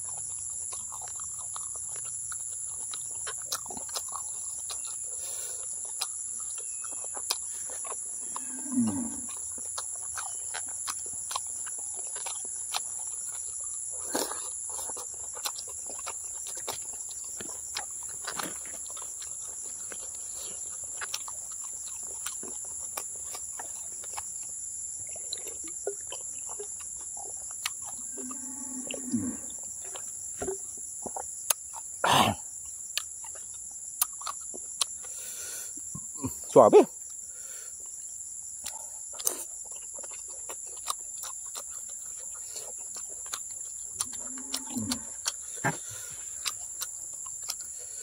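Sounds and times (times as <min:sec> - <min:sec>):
insects trilling: 0:00.0 - 0:48.0
sticky chewing: 0:00.0 - 0:48.0.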